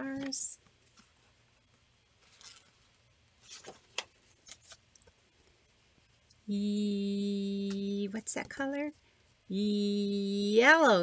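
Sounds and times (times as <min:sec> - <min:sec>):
book pages turning: 0:02.2 - 0:02.8, 0:03.4 - 0:05.2
woman humming: 0:06.5 - 0:08.2, 0:09.5 - 0:11.0.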